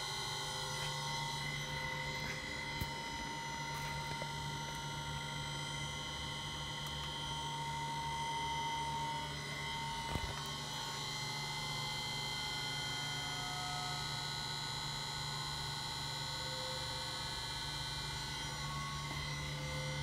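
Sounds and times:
high whining tones: 0.0 - 12.0
electric motor humming: 0.0 - 13.6.

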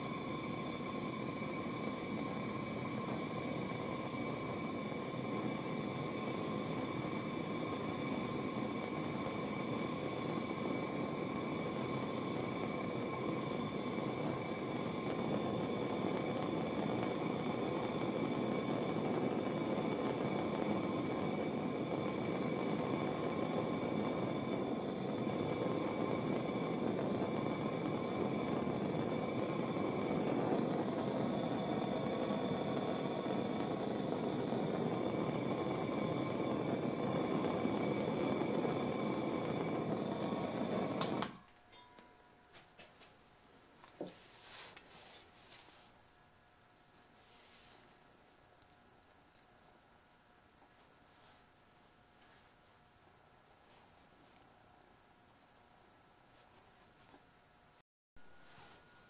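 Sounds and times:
torch rushing hiss: 0.0 - 41.5
faint steady tones: 58.2 - 59.0.

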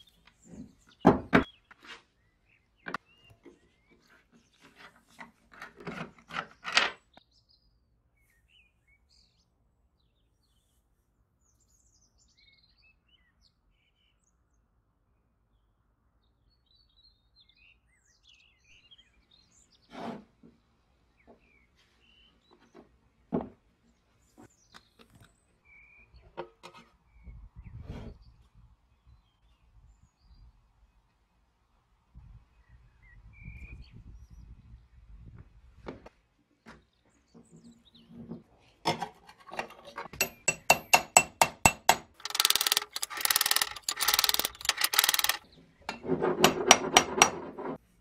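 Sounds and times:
faint birds chirping: 0.0 - 35.4
knocks of parts handled: 38.9 - 47.4
screwdriver metal clicks: 40.2 - 45.4.

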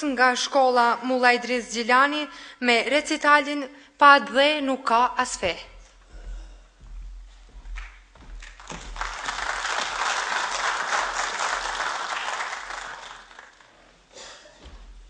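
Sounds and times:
audience applauding: 8.4 - 13.8.

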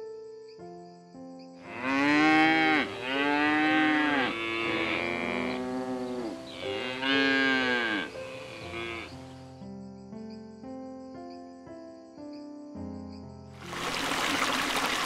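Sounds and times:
soft background music: 0.0 - 14.0
cow mooing: 1.7 - 9.2.

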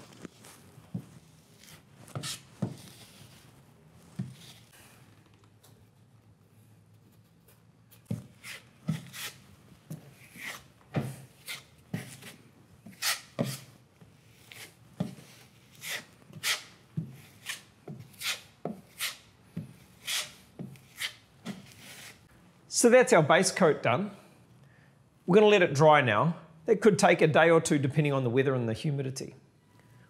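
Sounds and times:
broad knife scraping joint compound: 0.0 - 4.8, 7.2 - 22.3.

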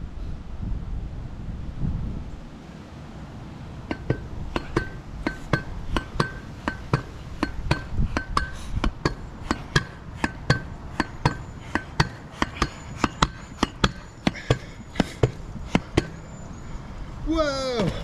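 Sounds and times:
wind noise: 0.0 - 18.0
pogo stick clanking on pavement: 3.9 - 16.4.

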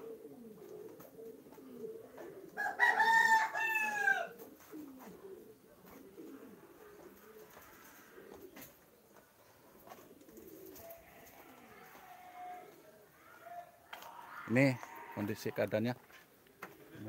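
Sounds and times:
pigeons cooing: 0.0 - 17.0
rooster crowing: 2.6 - 4.3, 10.9 - 15.6.

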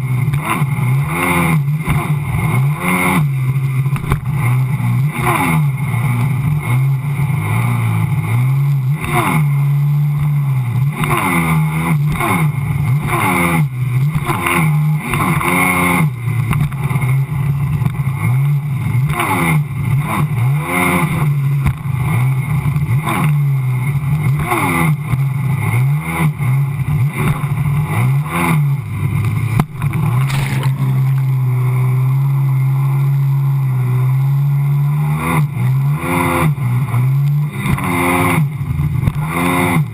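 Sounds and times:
watercraft engine revving: 0.0 - 39.9.

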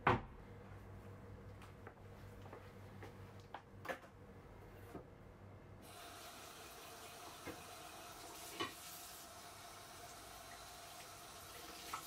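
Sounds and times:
tap water running into sink: 5.9 - 12.0.

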